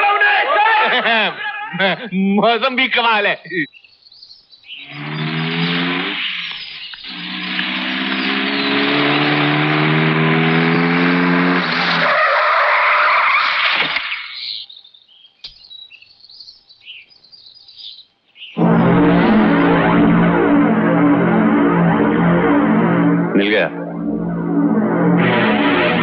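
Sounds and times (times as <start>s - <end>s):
car engine revving: 4.8s - 12.0s, 18.6s - 26.0s
tyres skidding on dirt road: 4.8s - 14.3s.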